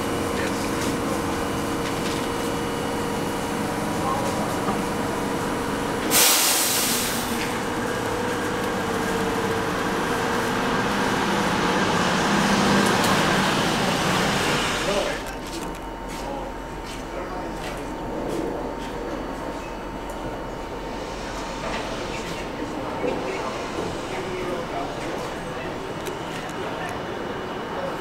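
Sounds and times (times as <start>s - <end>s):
train equipment humming: 0.0s - 28.0s
compressed air hiss: 6.1s - 7.4s.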